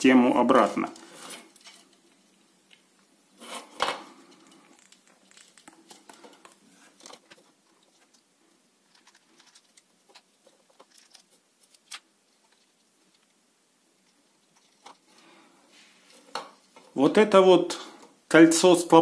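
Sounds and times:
plastic rubbing: 4.4s - 13.4s.

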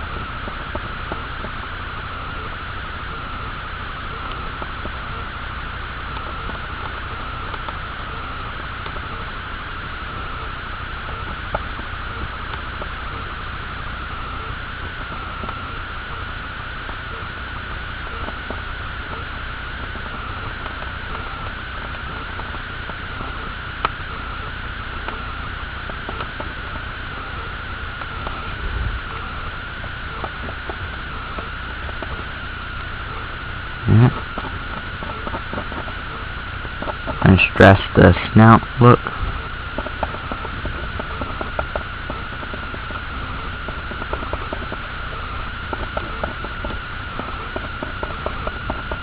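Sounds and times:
high whine: 0.0s - 49.0s
low hum: 0.0s - 49.0s.

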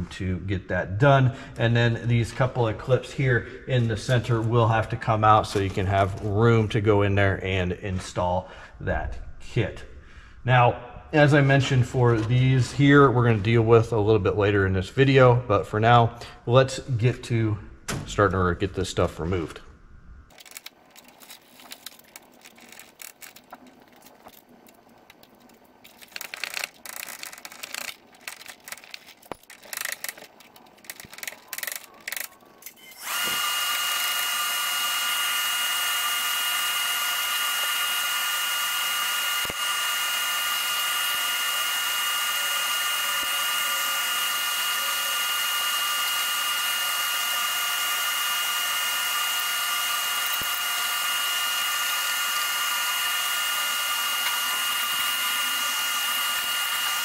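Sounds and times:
clips clicking and rattling: 20.3s - 33.4s.

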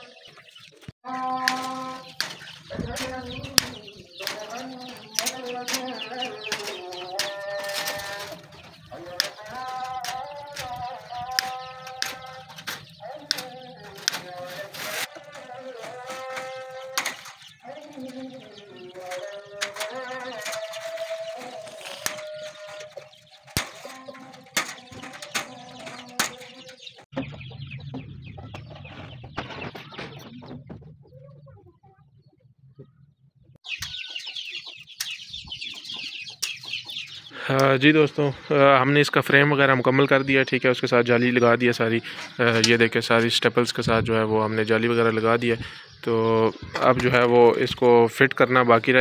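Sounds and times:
hens clucking: 0.0s - 49.0s
wire cutters snipping wire mesh: 1.3s - 27.0s.

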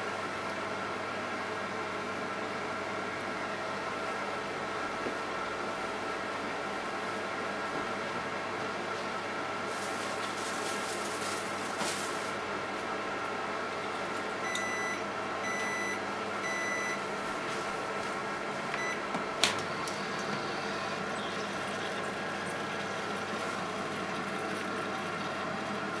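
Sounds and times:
microwave hum: 0.0s - 26.0s
microwave beeping: 14.4s - 17.1s, 18.7s - 25.6s.

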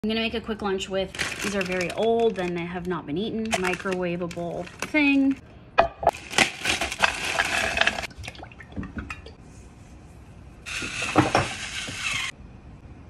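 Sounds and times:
frozen sprouts tumbling into skillet: 6.1s - 8.1s.

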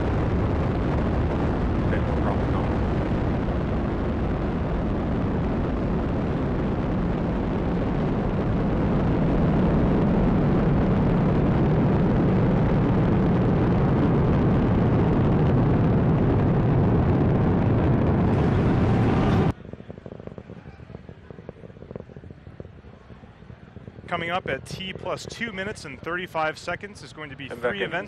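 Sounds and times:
rocket engines rumbling: 0.0s - 28.0s.

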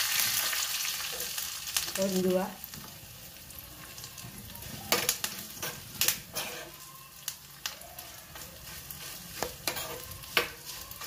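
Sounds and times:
spices sizzling in hot oil: 0.0s - 11.0s
steel spoon scraping a pan: 4.7s - 6.9s, 7.7s - 11.0s.

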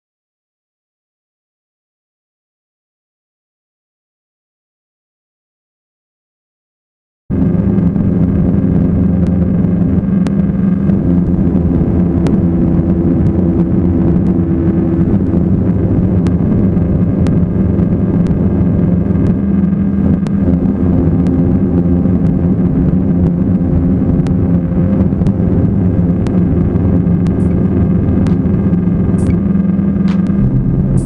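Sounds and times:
ambient electronic music: 23.9s - 31.0s.

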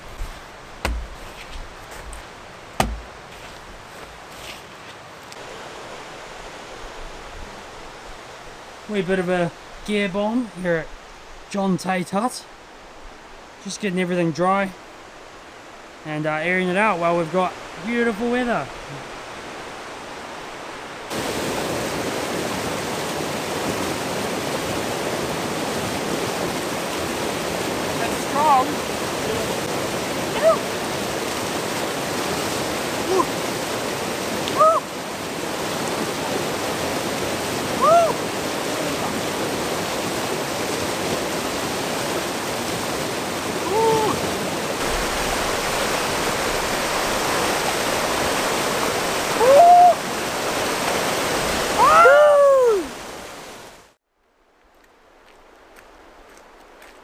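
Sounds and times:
river rapids rushing: 0.0s - 9.0s, 16.8s - 54.0s
rising and falling cry: 34.5s - 34.9s, 37.8s - 38.2s, 43.6s - 44.2s, 49.4s - 50.0s, 51.7s - 52.9s.

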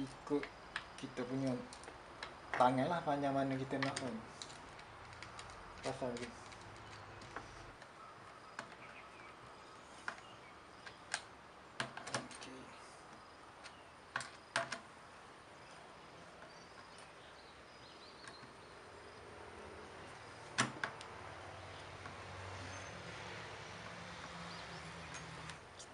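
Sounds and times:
clicks and knocks of metal and plastic: 3.5s - 7.9s, 10.0s - 12.5s, 13.6s - 14.9s, 20.5s - 21.1s.

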